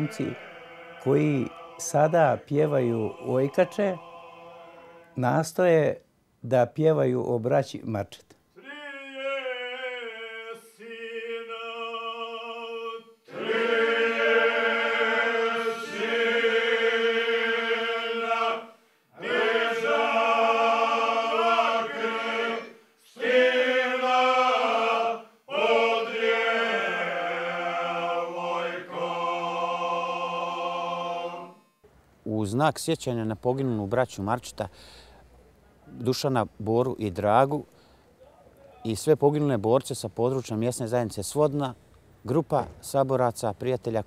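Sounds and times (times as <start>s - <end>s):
steady drone note: 0.0s - 5.3s
men singing a cappella: 0.0s - 5.4s, 8.6s - 31.7s.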